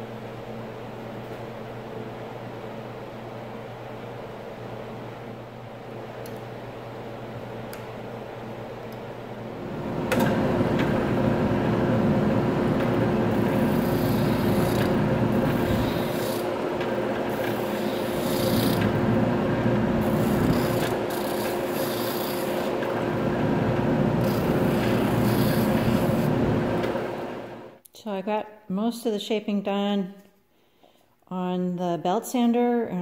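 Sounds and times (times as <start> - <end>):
sander motor hum: 9.6 - 27.7
drum rasping on wood: 13.4 - 16.5, 17.4 - 18.9, 20.0 - 22.7.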